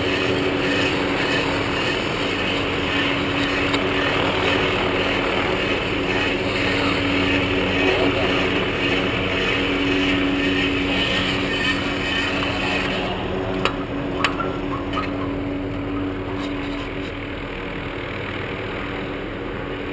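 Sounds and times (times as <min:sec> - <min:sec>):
distant helicopter hum: 0:00.0 - 0:19.9.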